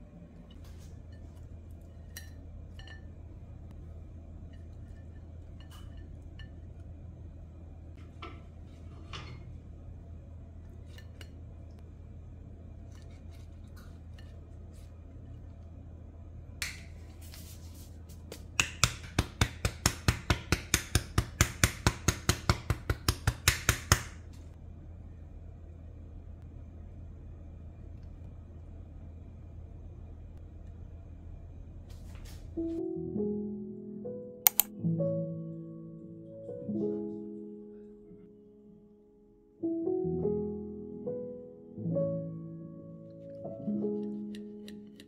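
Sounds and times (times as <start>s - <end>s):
steady low hum: 0.0s - 21.9s, 24.2s - 32.8s
sugar duster tapping: 18.3s - 24.2s.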